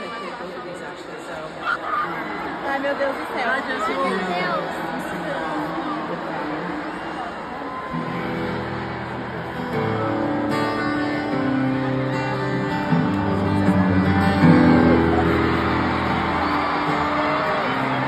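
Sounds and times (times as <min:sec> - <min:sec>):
acoustic guitar strumming: 0:07.9 - 0:18.0.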